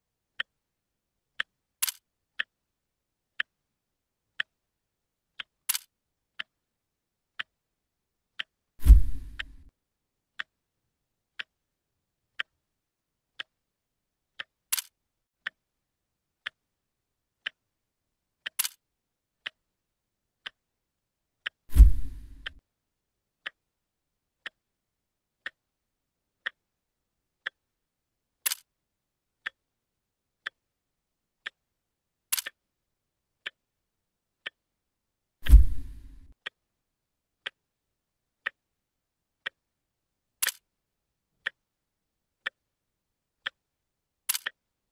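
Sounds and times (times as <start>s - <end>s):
clock ticking: 0.3s - 0.6s, 1.3s - 2.6s, 3.3s - 3.6s, 4.3s - 4.6s, 5.3s - 6.6s, 7.3s - 7.6s, 8.3s - 9.7s, 10.4s - 10.6s, 11.4s - 11.6s, 12.3s - 12.6s, 13.3s - 13.6s, 14.4s - 15.6s, 16.4s - 16.6s, 17.4s - 17.7s, 18.4s - 18.8s, 19.4s - 19.6s, 20.4s - 20.6s, 21.4s - 22.6s, 25.4s - 25.6s, 26.4s - 26.6s, 28.4s - 28.7s, 29.4s - 29.6s, 30.4s - 30.6s, 31.4s - 31.6s, 32.3s - 32.6s, 37.4s - 37.6s, 40.4s - 40.6s, 41.4s - 41.6s, 43.4s - 43.6s, 44.3s - 44.6s
sharp clicks: 1.8s - 2.0s, 5.4s - 5.9s, 14.4s - 14.9s, 18.4s - 18.8s, 28.4s - 28.6s, 32.3s - 32.6s, 40.4s - 40.6s, 44.3s - 44.6s
loud deep thuds: 8.8s - 9.4s.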